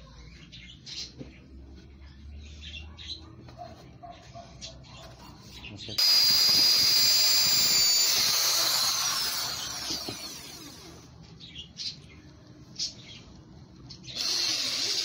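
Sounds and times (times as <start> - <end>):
electric drill boring into wood: 6.0 - 11.1, 14.2 - 15.0.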